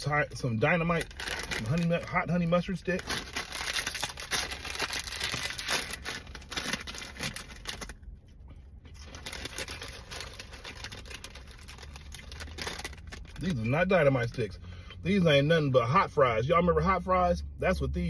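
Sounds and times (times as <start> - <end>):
plastic snack bag crinkling: 0.6 - 8.0, 8.9 - 13.7.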